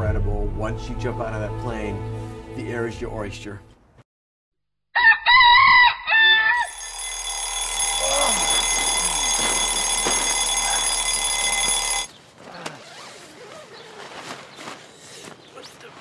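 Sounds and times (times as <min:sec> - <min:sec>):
high-pitched electronic ringing: 0:06.6 - 0:12.1
warbling alarm tones: 0:06.6 - 0:12.1.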